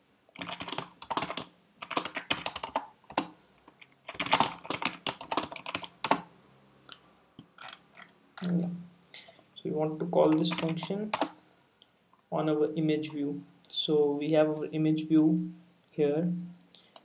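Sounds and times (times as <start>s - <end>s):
typing on computer keyboard: 0.4s - 6.3s, 10.3s - 11.4s.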